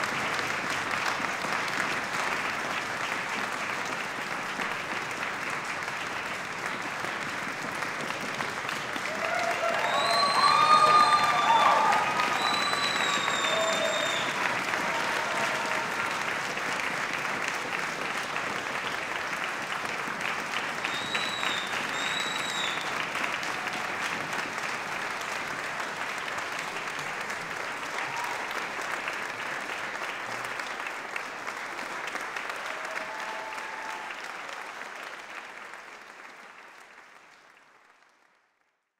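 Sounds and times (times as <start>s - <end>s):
audience applauding: 0.0s - 38.9s
high whistles: 9.8s - 14.4s, 20.9s - 22.9s.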